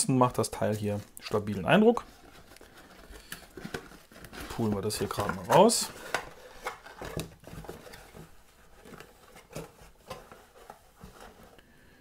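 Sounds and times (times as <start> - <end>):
packaging clicks and rustles: 0.3 - 11.6.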